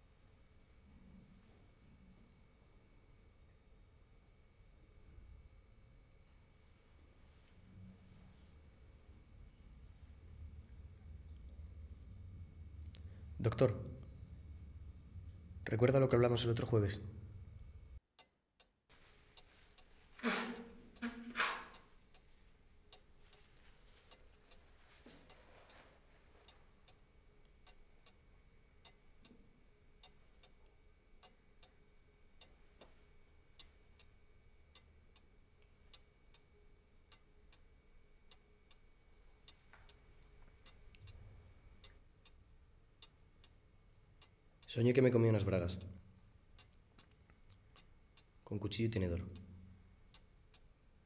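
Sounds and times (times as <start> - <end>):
clock ticking: 19.3 - 25.8, 27.6 - 28.2, 32.4 - 35.3, 45.7 - 48.4, 50.1 - 50.7.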